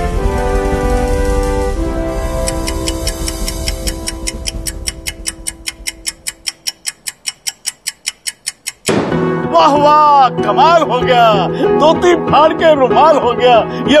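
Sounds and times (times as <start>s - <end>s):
held music chords: 0.0s - 12.2s
fast clock ticking: 2.4s - 9.1s.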